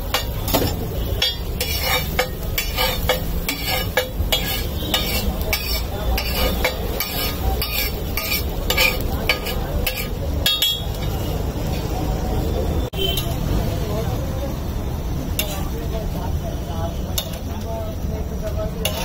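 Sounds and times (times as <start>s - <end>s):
metal spatula scraping on iron pan: 0.0s - 12.0s, 15.4s - 15.8s, 17.1s - 17.6s, 18.8s - 19.0s
food sizzling: 0.0s - 19.0s.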